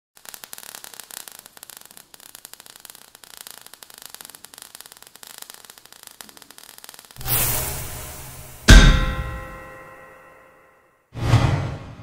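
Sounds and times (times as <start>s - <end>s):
steady hiss: 0.2s - 9.6s
sparks crackling: 0.2s - 10.1s.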